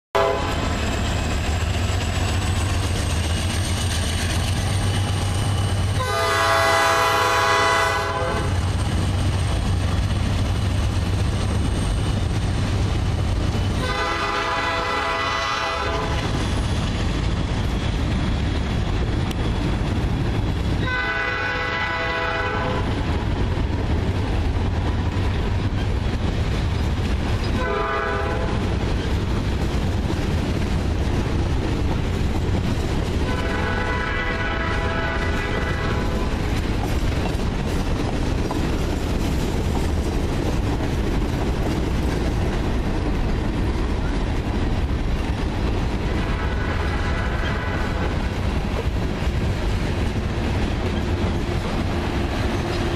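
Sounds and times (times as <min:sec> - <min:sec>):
freight train rumbling past: 0:00.1 - 0:52.9
locomotive air horn blasts: 0:00.2 - 0:00.7, 0:06.0 - 0:08.7, 0:13.8 - 0:16.3, 0:20.8 - 0:22.9, 0:27.6 - 0:28.6, 0:33.2 - 0:36.3, 0:46.2 - 0:48.1.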